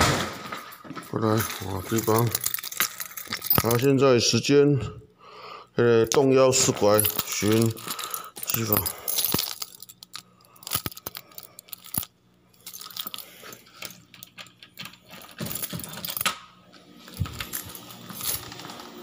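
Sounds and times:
handling clicks and knocks: 0.8 - 3.9, 6.1 - 16.4
keys jangling: 1.1 - 4.0, 6.1 - 16.4, 17.1 - 19.0.

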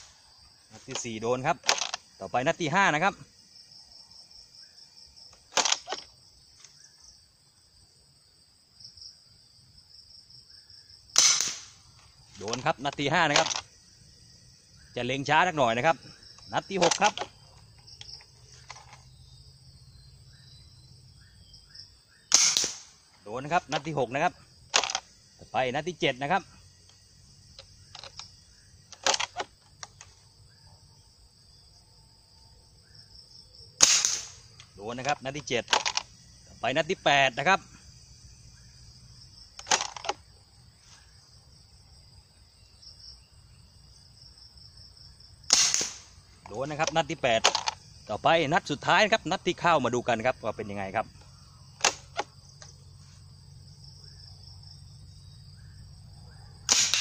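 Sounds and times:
crickets chirring: 0.0 - 57.0
high insect buzz: 0.0 - 57.0
gun clacks: 0.8 - 2.1, 5.4 - 6.1, 11.2 - 11.8, 13.3 - 13.7, 16.7 - 17.4, 18.0 - 19.1, 22.3 - 23.0, 24.7 - 25.1, 27.6 - 28.3, 28.9 - 30.1, 33.8 - 36.1, 39.6 - 40.2, 45.5 - 47.8, 51.8 - 52.7, 56.7 - 57.0
plastic pump action clicks: 16.8 - 17.3, 27.9 - 28.3, 28.9 - 30.1, 35.7 - 36.1, 39.6 - 40.2, 46.4 - 47.8.

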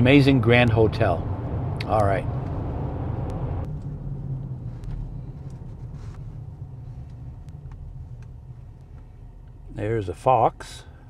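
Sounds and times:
car driving rumble from inside: 0.0 - 10.9.

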